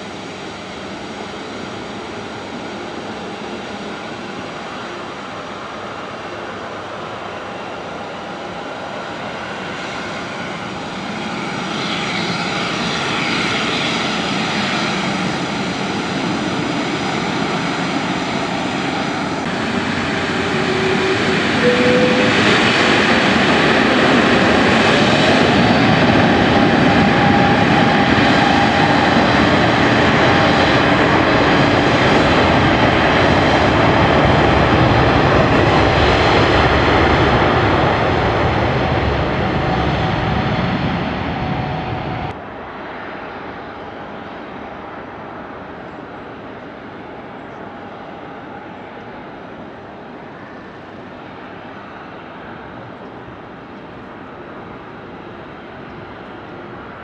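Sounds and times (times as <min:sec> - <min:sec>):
rising engine whine: 0:07.3 - 0:45.0
jet engines spooling up: 0:07.4 - 0:45.6.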